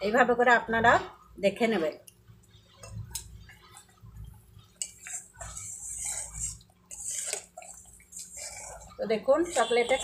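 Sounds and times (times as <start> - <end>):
thick syrup bubbling: 2.2 - 10.0
spatula scraping metal pan: 4.8 - 10.0.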